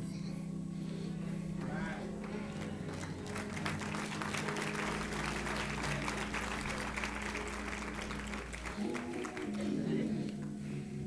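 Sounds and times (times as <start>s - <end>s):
music holding low notes: 0.0s - 11.0s
congregation applauding: 1.6s - 10.4s.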